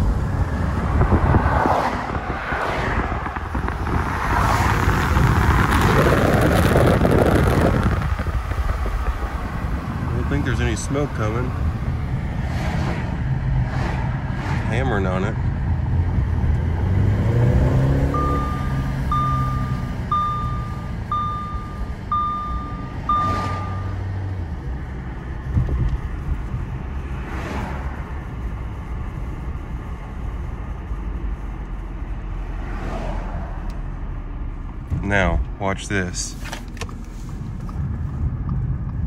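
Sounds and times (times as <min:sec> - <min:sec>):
car engine: 0:00.0 - 0:39.0
road noise: 0:00.0 - 0:39.0
dashboard chime beeping: 0:18.1 - 0:24.1.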